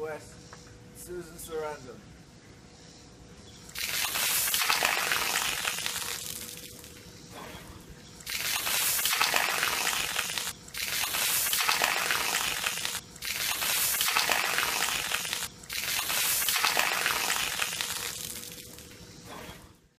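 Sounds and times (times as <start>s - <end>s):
hose spraying and splashing: 3.8s - 6.9s, 8.2s - 19.1s.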